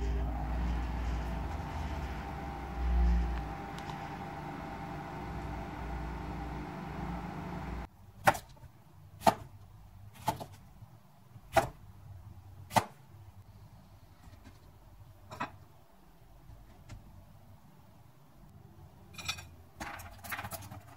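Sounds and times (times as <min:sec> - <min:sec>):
microwave oven humming: 0:00.0 - 0:07.9.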